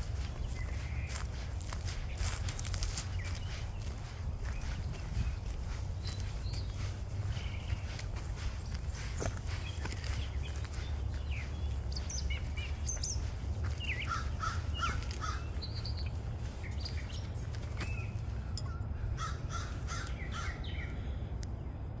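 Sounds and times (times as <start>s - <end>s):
birds calling and chirping: 0.0s - 22.0s
short repeated bird calls: 11.9s - 16.2s.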